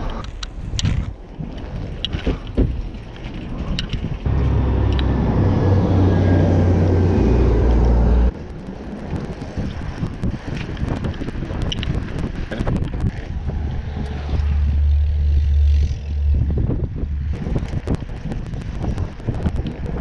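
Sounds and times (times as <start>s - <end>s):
bicycle rattling and clicking: 0.0s - 4.3s, 8.3s - 20.0s
road traffic rumble: 4.2s - 20.0s
sharp ticking: 4.3s - 13.1s, 17.3s - 20.0s.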